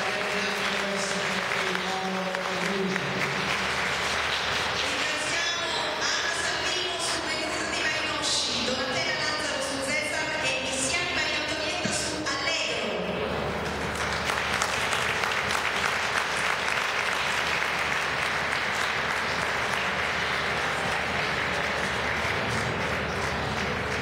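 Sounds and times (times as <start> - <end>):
audience applauding: 0.0 - 6.2, 13.5 - 24.0.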